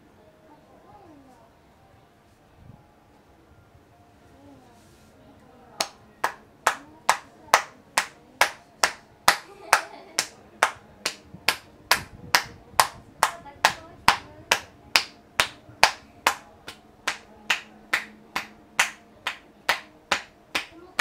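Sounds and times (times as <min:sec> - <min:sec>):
cupped hands clapping on head: 0:05.8 - 0:21.0.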